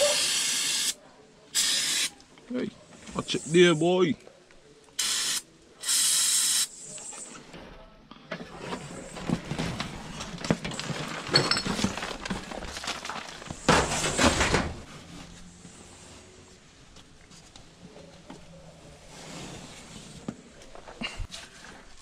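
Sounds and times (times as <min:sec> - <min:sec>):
aerosol spray can hissing: 0:01.6 - 0:02.1
carpet crackling and rustling: 0:08.5 - 0:22.0.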